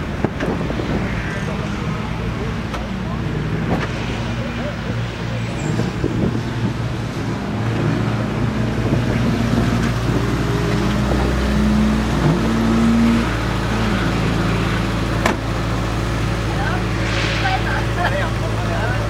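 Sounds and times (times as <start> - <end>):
cars driving past: 0.0 - 19.0.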